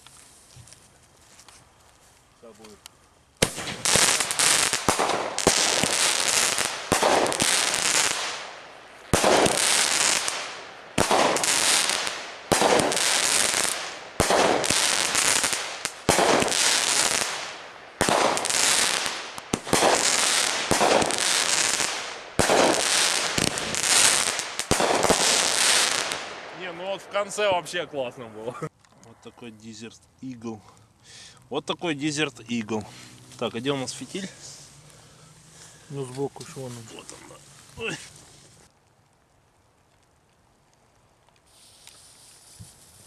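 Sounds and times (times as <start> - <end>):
firework bangs with crackling hiss: 3.4 - 27.0, 41.4 - 43.0.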